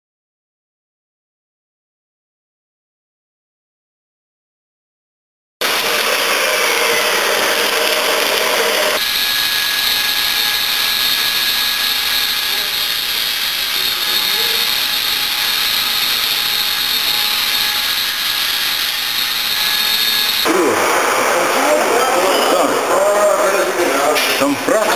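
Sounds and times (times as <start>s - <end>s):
screw mixer running: 5.6s - 22.3s
mechanical whine: 5.6s - 24.5s.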